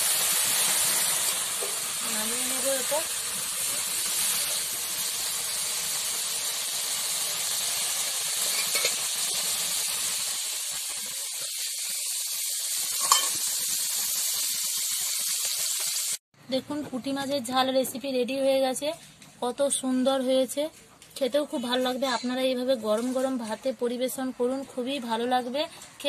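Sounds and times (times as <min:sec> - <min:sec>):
fish sizzling in gravy: 0:00.0 - 0:16.2.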